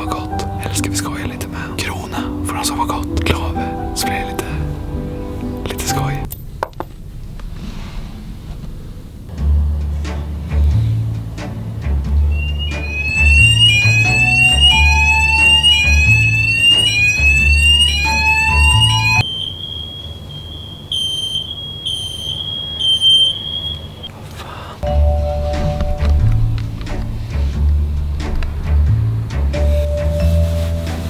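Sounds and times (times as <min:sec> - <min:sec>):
fire alarm whooping sweeps: 0:12.3 - 0:24.1
loud alarm beeps: 0:12.3 - 0:24.1
steady high alarm tone: 0:12.3 - 0:24.1.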